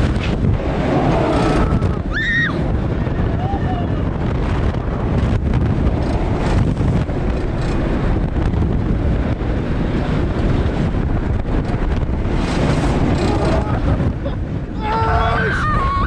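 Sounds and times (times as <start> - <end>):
roller coaster train rumble: 0.0 - 16.0
wind buffeting microphone: 0.0 - 16.0.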